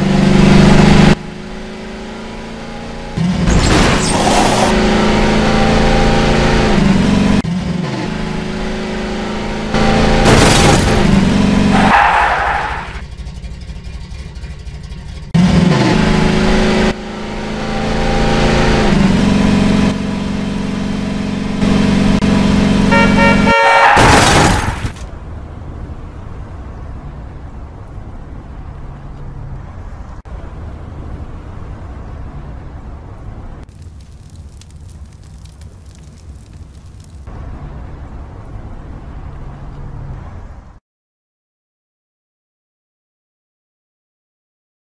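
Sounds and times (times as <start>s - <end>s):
car horn honking: 22.8s - 24.2s.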